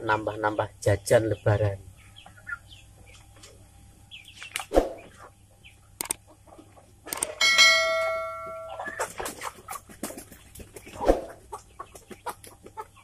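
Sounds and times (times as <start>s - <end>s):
chickens clucking and scuffling: 0.0s - 13.0s
bright bell-like ring: 7.4s - 9.0s.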